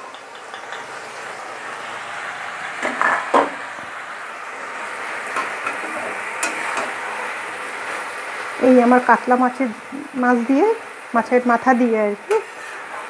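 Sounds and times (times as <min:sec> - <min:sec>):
food sizzling in a pan: 0:00.0 - 0:13.0
metal spatula scraping pan: 0:05.4 - 0:07.2, 0:12.3 - 0:13.0.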